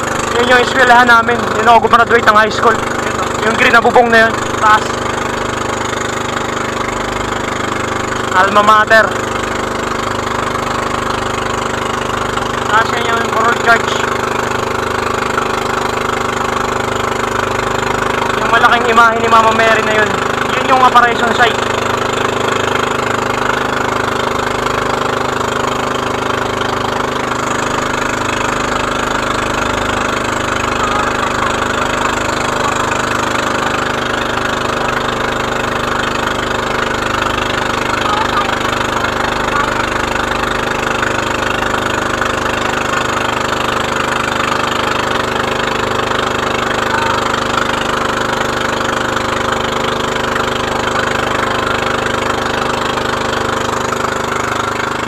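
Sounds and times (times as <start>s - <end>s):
boat motor running: 0.0s - 55.0s.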